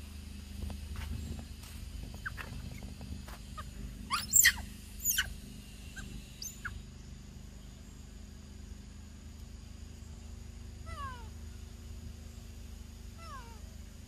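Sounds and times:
steady low hum: 0.0 - 14.0
monkey squealing: 3.6 - 5.3, 6.0 - 6.8.

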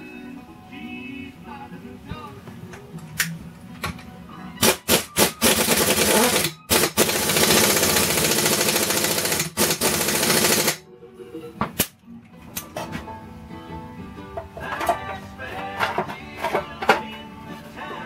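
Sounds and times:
impact wrench hammering: 4.6 - 10.8.

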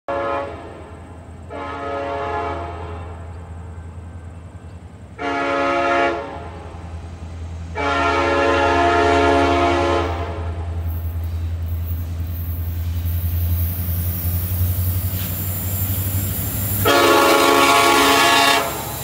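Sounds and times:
locomotive air horn blasts: 0.1 - 3.3, 5.2 - 6.8, 7.7 - 10.8, 16.7 - 19.0
low rumble of train: 0.1 - 19.0.

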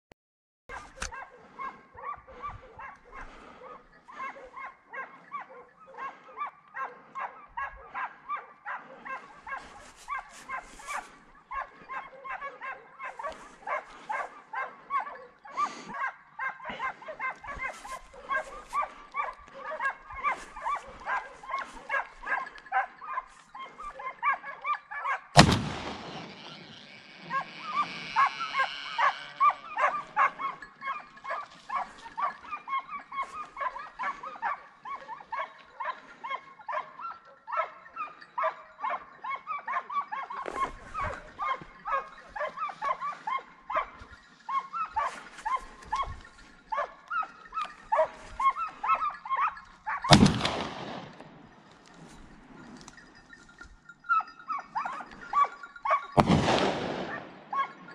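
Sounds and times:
hounds baying: 0.7 - 57.9
loud rifle shots: 25.4 - 26.4, 50.1 - 51.4, 56.2 - 57.4.

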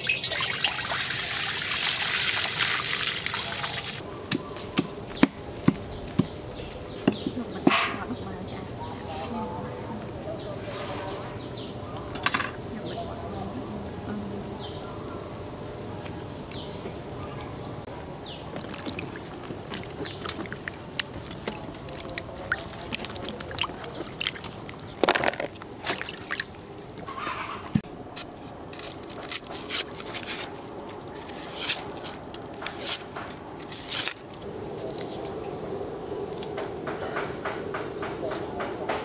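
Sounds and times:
vegetables splashing in water: 18.6 - 26.7.

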